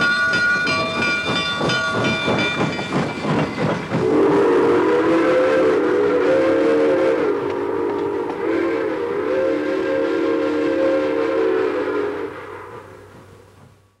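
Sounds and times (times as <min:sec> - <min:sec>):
steam whistle chord: 0:04.0 - 0:13.1.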